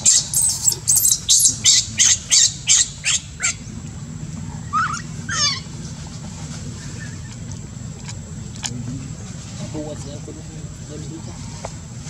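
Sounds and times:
baby monkey shrieking: 0.0 - 1.8
baby monkey wavering cries: 0.0 - 2.8.

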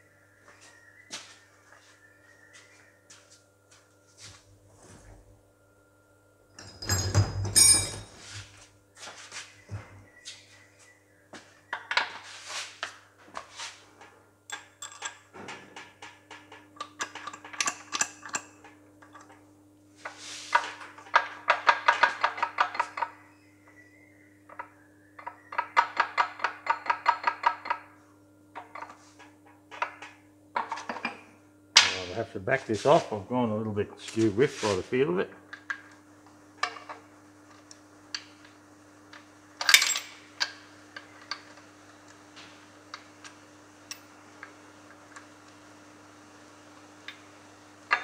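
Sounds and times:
metal tools clinking on metal: 6.6 - 8.3, 39.6 - 40.6.

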